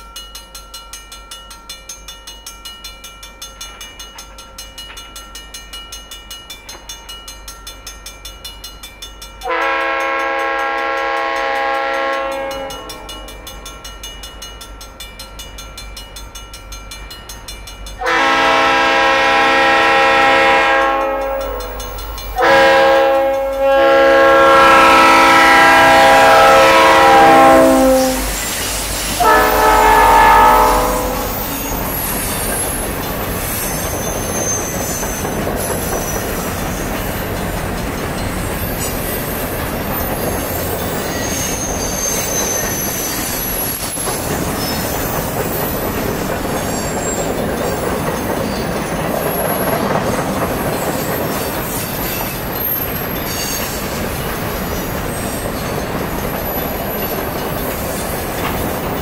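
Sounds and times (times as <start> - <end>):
train wheels rumbling on rail: 0.0 - 59.0
locomotive horn chord: 9.4 - 13.1, 18.0 - 21.6, 22.4 - 28.4, 29.2 - 31.5
high wheel squeals: 24.6 - 37.4, 38.3 - 59.0.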